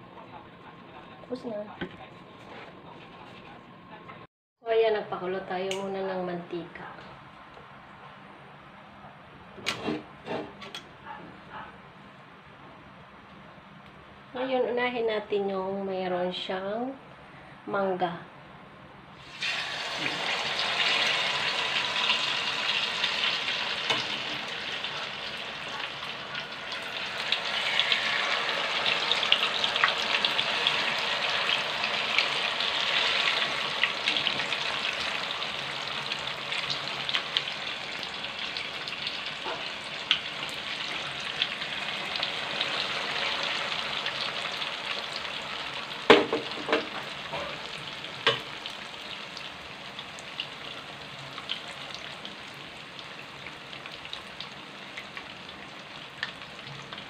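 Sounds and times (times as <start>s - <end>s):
deep-frying sizzle and crackle: 19.2s - 57.0s.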